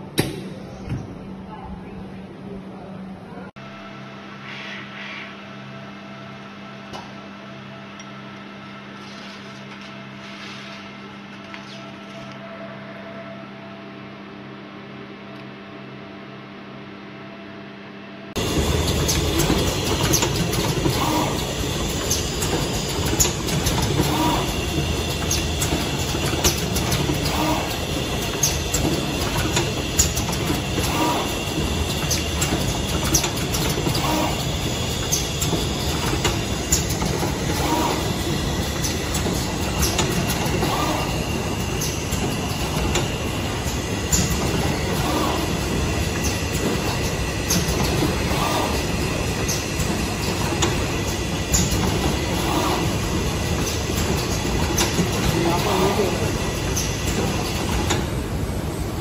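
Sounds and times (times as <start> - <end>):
machine clattering and clicking: 18.4 - 58.2.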